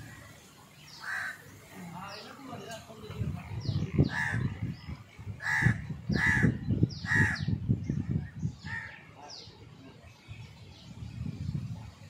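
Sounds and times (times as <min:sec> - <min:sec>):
small birds chirping: 0:00.0 - 0:12.0
crows cawing: 0:01.0 - 0:01.4, 0:04.0 - 0:04.5, 0:05.4 - 0:07.5.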